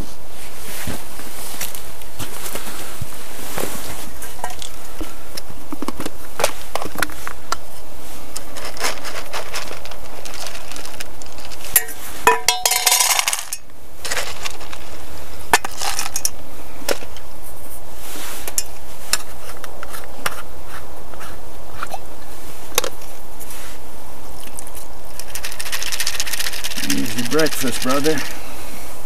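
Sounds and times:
kibble rattling into metal bowl: 8.6 - 14.8, 25.1 - 28.4
metal bowl clinking: 11.8 - 13.6.

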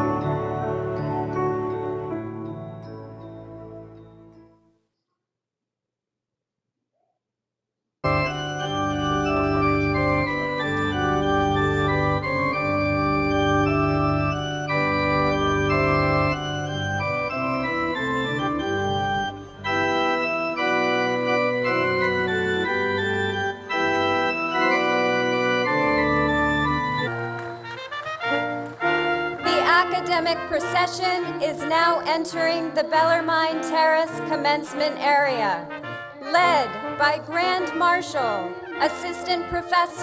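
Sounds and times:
organ playing slow chords: 0.0 - 4.6, 8.0 - 39.4.

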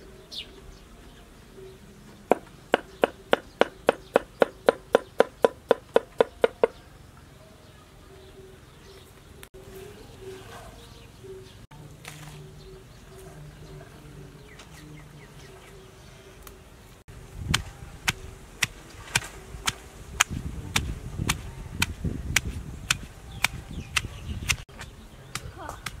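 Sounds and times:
mortar and pestle pounding: 2.3 - 6.8.

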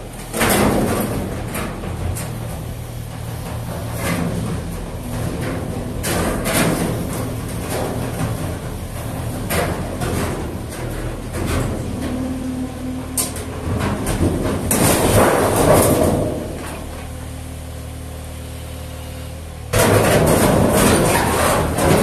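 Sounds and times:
diesel engine under load: 0.0 - 22.0
metal clanking and scraping: 0.2 - 17.1, 19.7 - 22.0.

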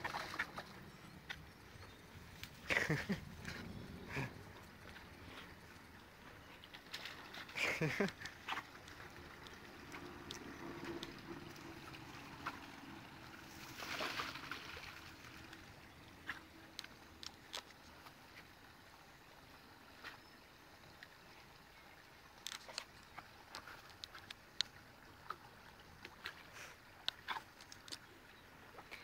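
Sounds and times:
dog swimming and paddling: 0.0 - 18.8
light clicks and rustles: 22.4 - 25.4, 26.0 - 28.1.

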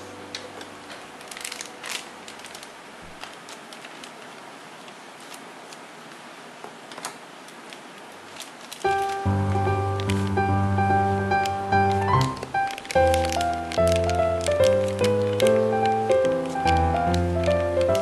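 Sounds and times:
steady low hiss: 0.0 - 18.0
jars lids and packets handled: 11.8 - 18.0.

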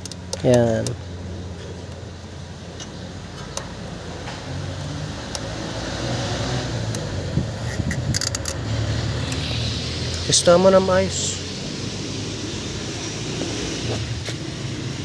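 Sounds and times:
metallic clicks of hand tools: 0.0 - 1.0, 6.9 - 8.6.

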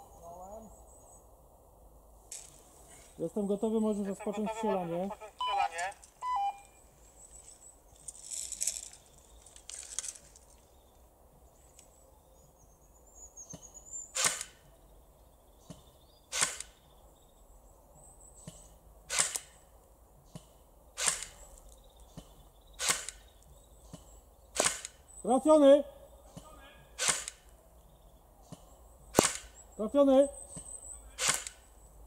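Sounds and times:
airsoft rifle sharp snaps: 14.2 - 14.6, 16.3 - 16.8, 19.1 - 19.6, 21.0 - 21.4, 22.8 - 23.3, 24.6 - 25.0, 27.0 - 27.5, 29.1 - 29.6, 31.2 - 31.6.

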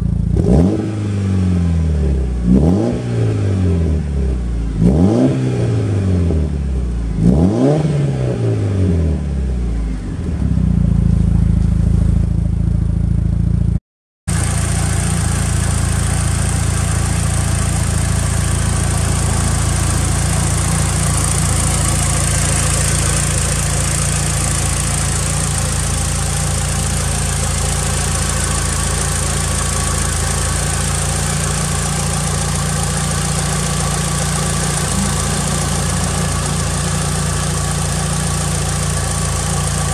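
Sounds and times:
car engine revving: 0.3 - 11.6, 14.3 - 39.9
car engine idling: 9.5 - 39.9.

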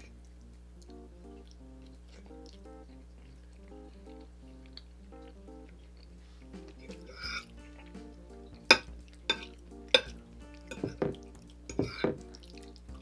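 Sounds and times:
soft background music: 0.0 - 13.0
fork clinking on a plate: 8.7 - 12.1.

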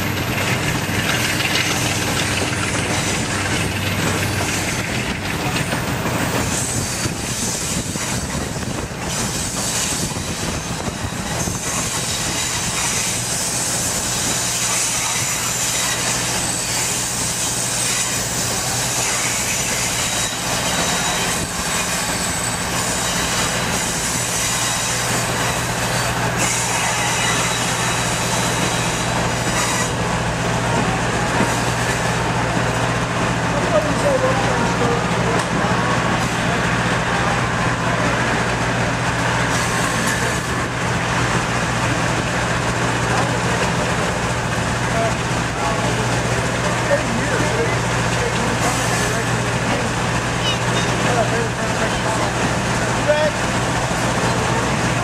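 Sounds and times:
train car rumbling on rails: 0.0 - 55.0.

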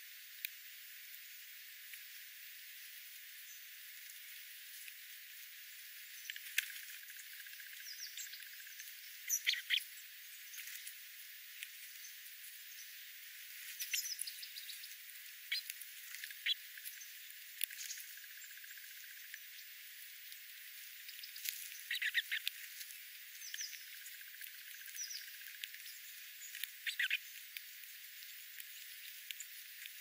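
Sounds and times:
birds pecking on gravel: 4.0 - 30.0
bird chip calls: 7.5 - 10.6, 13.8 - 18.8, 21.1 - 22.6, 23.3 - 27.6.

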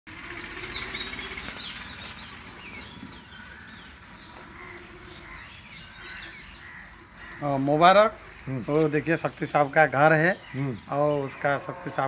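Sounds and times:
birds chirping: 0.1 - 12.0.

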